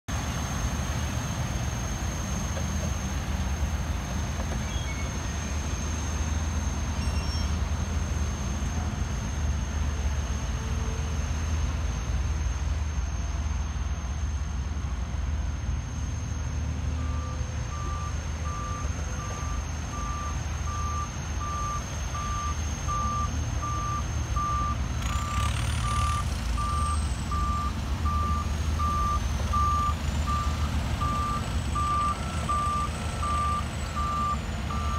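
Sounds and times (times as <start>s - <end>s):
heavy machinery diesel engines rumbling: 0.1s - 34.9s
reversing alarm beeping: 16.4s - 34.9s.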